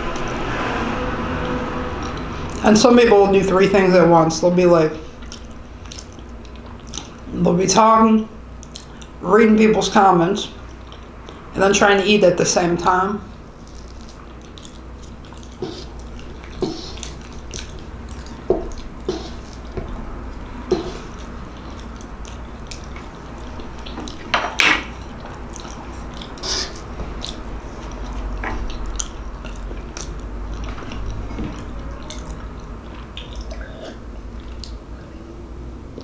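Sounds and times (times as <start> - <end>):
low steady hum: 0.0 - 36.0
person chewing food: 1.4 - 2.6, 5.0 - 7.3, 8.6 - 9.2, 10.6 - 11.5, 13.4 - 35.2
wet mouth clicks and smacks: 25.4 - 33.6.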